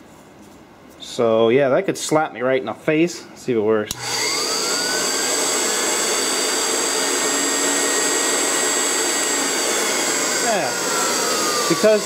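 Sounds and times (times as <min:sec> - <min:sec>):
grinder motor whining: 0:03.9 - 0:12.0.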